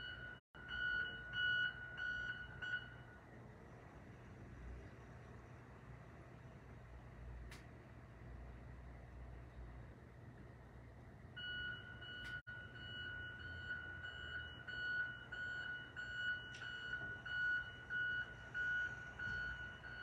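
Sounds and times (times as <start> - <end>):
electronic alarm beeping: 0.0 - 3.1, 11.4 - 20.0.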